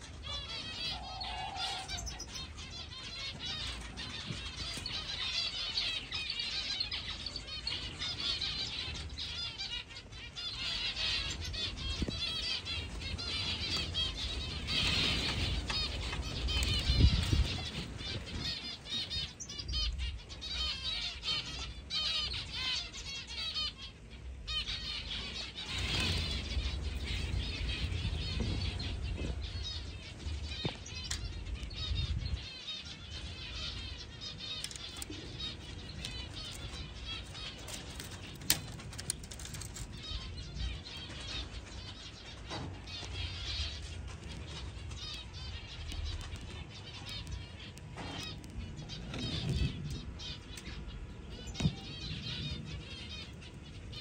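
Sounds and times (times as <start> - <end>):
finches chirping and twittering: 0.0 - 54.0
low rumbling bursts: 24.0 - 54.0.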